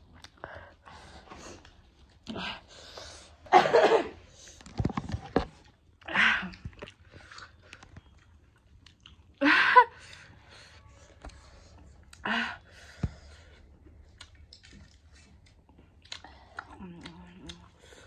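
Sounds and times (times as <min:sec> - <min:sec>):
person chewing: 0:00.0 - 0:00.4, 0:05.6 - 0:09.4, 0:12.8 - 0:18.0.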